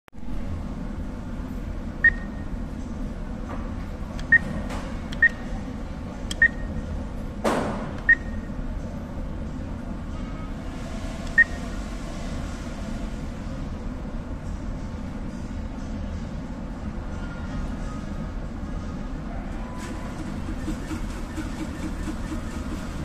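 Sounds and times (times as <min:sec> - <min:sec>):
low background hum: 0:00.2 - 0:23.0
atm beeps: 0:02.0 - 0:02.6, 0:04.2 - 0:04.6, 0:05.2 - 0:05.5, 0:06.3 - 0:06.8, 0:08.0 - 0:08.6, 0:11.3 - 0:11.6.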